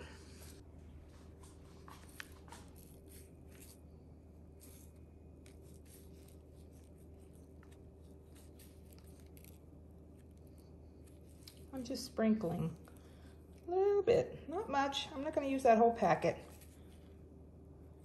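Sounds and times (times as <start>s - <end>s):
low steady hum: 0.0s - 18.0s
packet crinkling and rustling: 1.4s - 13.7s.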